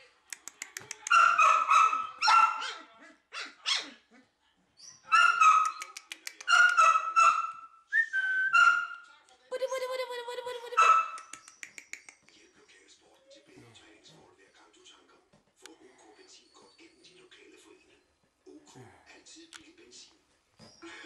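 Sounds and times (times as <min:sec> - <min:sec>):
puppies yipping and whining: 0:08.5 - 0:09.0.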